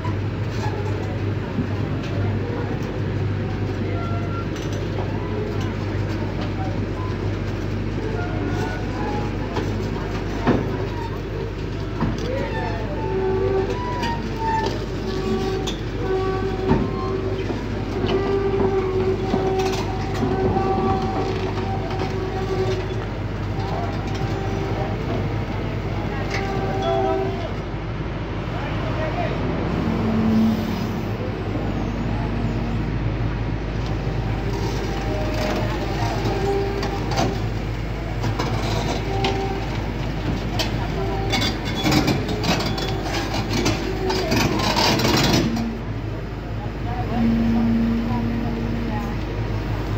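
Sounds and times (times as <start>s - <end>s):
excavator diesel drone: 0.0s - 49.9s
excavator whine: 0.0s - 49.9s
machine squeaks: 40.6s - 45.8s.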